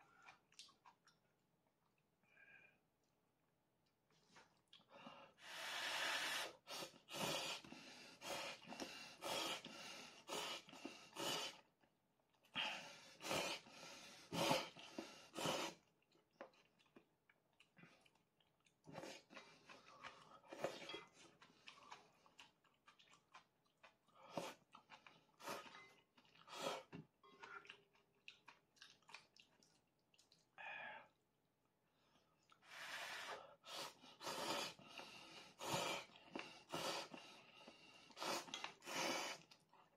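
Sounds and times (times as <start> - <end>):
noodles being slurped: 33.8 - 39.9.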